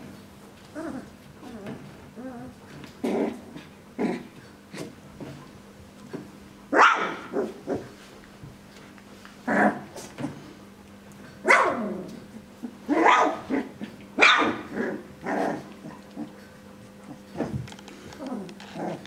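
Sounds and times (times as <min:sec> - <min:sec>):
puppies barking and yipping: 0:12.9 - 0:17.6.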